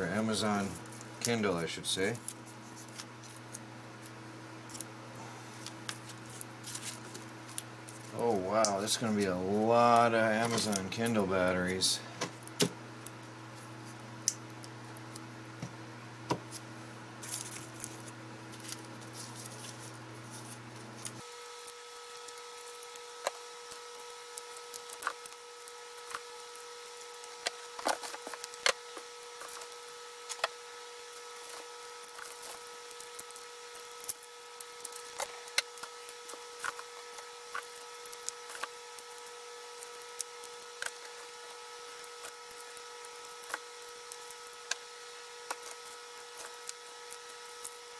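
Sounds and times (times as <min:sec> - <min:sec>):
faint hum: 0:00.0 - 0:47.9
packing peanuts rustling: 0:05.5 - 0:12.0, 0:17.2 - 0:47.9.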